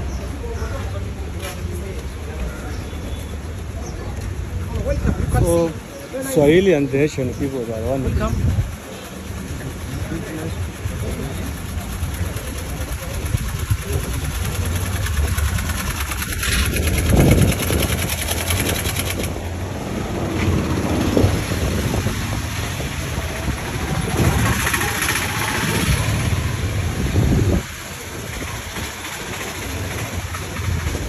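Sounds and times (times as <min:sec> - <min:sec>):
busy street noise: 0:00.0 - 0:31.0
low engine rumble: 0:07.2 - 0:31.0.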